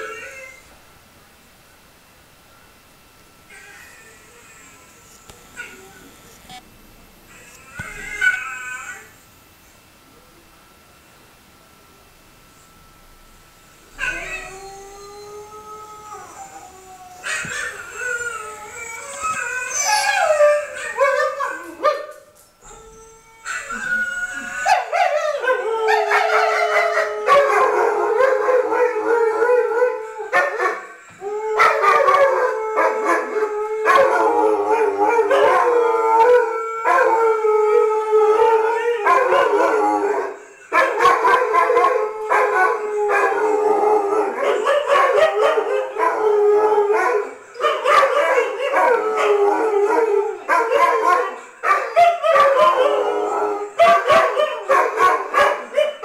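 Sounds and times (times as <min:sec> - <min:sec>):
dogs howling: 0:00.0 - 0:00.7, 0:07.3 - 0:09.2, 0:13.9 - 0:56.0.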